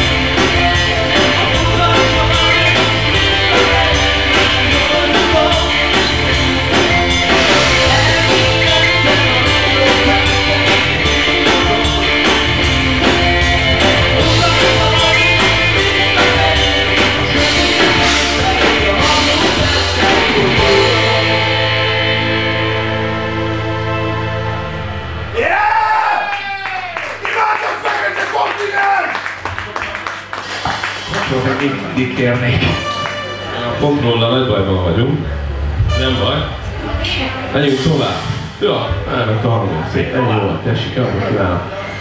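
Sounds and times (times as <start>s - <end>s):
drum and cymbal strokes: 0.0s - 23.0s, 37.0s - 39.1s
live rock band playing: 0.0s - 25.5s, 30.5s - 33.8s.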